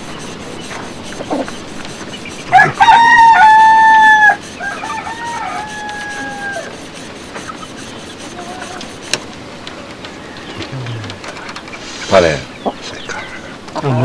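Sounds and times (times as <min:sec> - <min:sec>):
rooster crowing: 0:02.5 - 0:06.8, 0:10.1 - 0:11.2.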